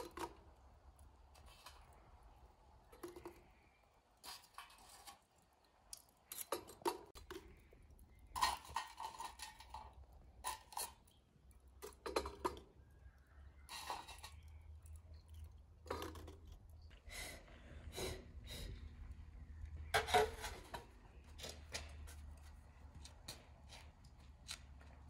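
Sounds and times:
utensils and dishes clattering: 6.3s - 7.2s, 8.4s - 11.0s.

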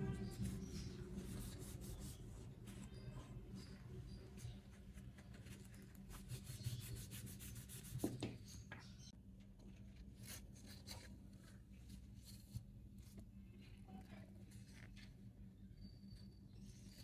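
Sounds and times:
low steady hum: 0.0s - 17.0s.

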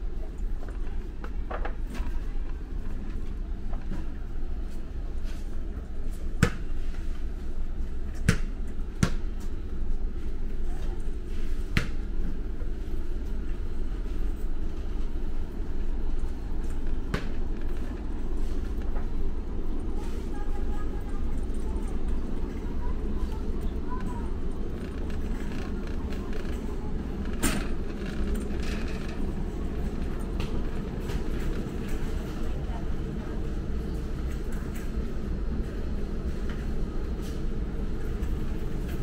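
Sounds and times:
steady low rumble: 12.0s - 39.0s
faint voices: 15.5s - 39.0s.

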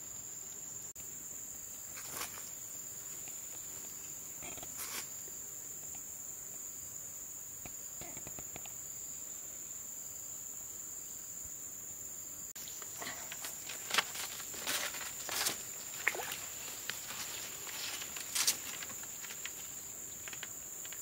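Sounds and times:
insects chirring: 0.0s - 21.0s.

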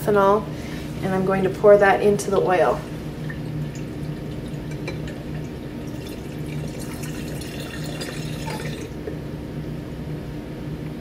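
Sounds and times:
steady low hum: 0.0s - 11.0s
liquid trickling and splashing: 3.0s - 9.0s.

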